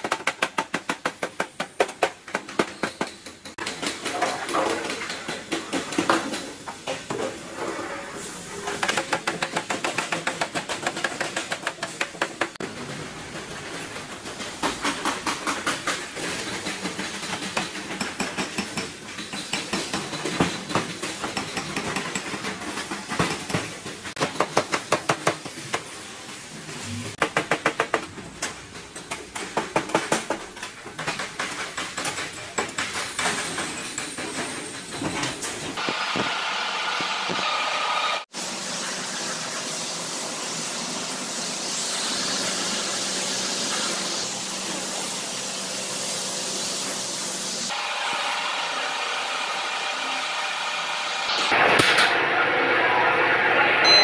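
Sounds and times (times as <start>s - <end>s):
hammers striking sheet metal: 0.0s - 6.6s, 8.8s - 12.6s, 14.6s - 25.5s, 27.1s - 28.1s.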